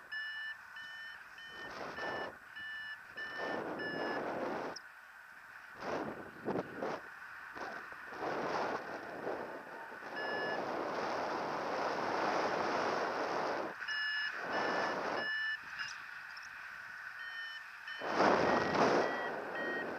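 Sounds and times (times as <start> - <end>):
variometer beeping: 0.0 - 4.8, 9.8 - 10.7, 13.7 - 19.9
wind on microphone: 3.2 - 4.8, 5.8 - 13.8, 18.0 - 19.9.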